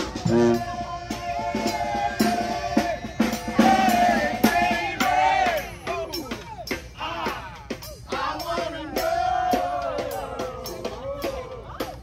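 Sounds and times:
brass band horns: 0:00.0 - 0:05.8
bass drum and snare: 0:00.0 - 0:12.0.

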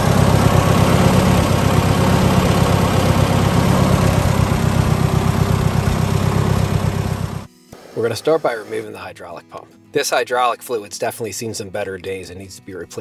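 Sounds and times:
tractor engine idling: 0:00.0 - 0:07.5.

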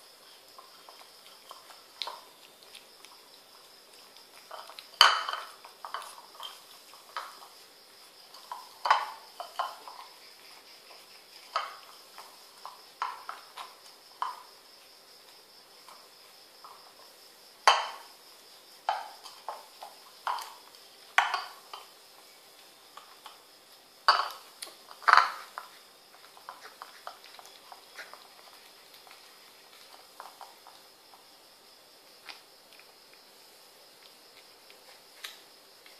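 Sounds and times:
ceramic bowl clinking on tile: 0:04.5 - 0:07.3, 0:24.1 - 0:24.4.

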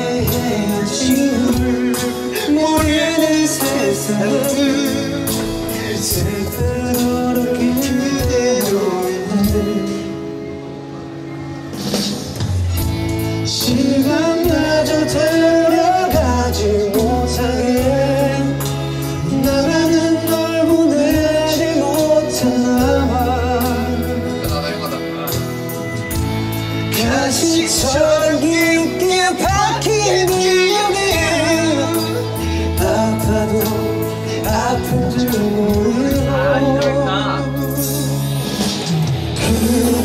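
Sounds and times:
man singing a ballad: 0:00.0 - 0:10.8, 0:13.4 - 0:25.9, 0:26.8 - 0:40.0
band backing track: 0:00.0 - 0:40.0.

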